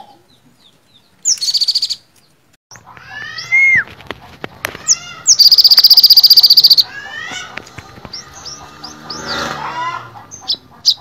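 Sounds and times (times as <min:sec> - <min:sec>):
bird singing trills and whistles: 0:00.6 - 0:02.1, 0:04.9 - 0:06.9.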